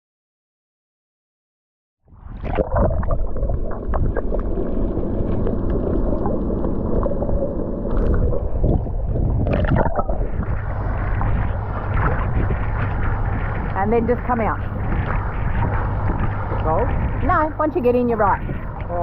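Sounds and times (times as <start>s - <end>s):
muffled underwater rumble: 2.1s - 19.0s
open-air water noise: 2.1s - 19.0s
splash: 2.3s - 17.3s.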